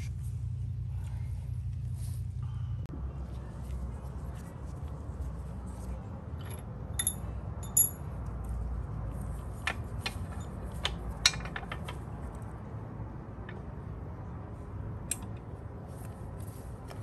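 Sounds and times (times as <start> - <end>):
faint low hum: 0.0 - 9.5
metallic clinks: 6.4 - 8.1.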